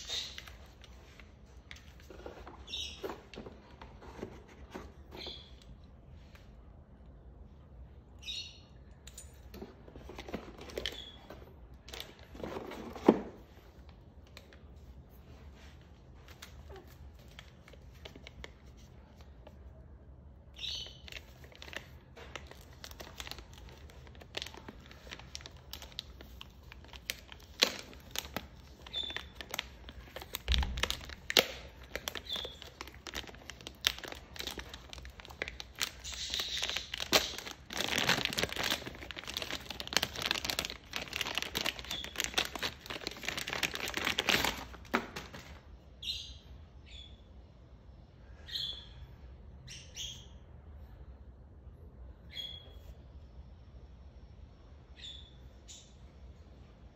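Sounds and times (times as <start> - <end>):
plastic bag crinkling: 21.0 - 45.6.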